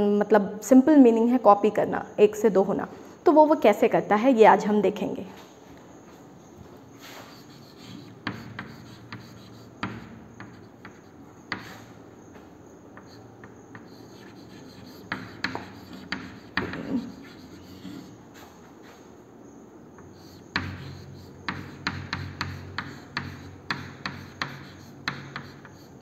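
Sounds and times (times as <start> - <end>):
chalk scratching on a chalkboard: 7.0 - 12.0, 13.0 - 19.0, 20.0 - 26.0
chalk tapping on a chalkboard: 7.0 - 18.5, 20.0 - 26.0.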